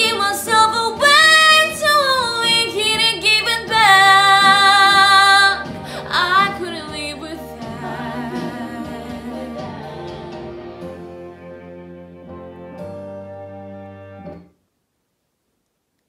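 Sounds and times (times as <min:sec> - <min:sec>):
woman singing: 0:00.0 - 0:10.6
instrumental accompaniment: 0:00.0 - 0:14.6.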